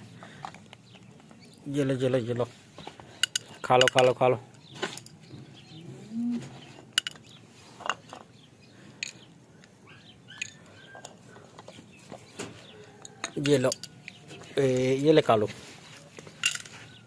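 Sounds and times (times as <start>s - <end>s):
faint bird chirps: 8.3s - 14.7s.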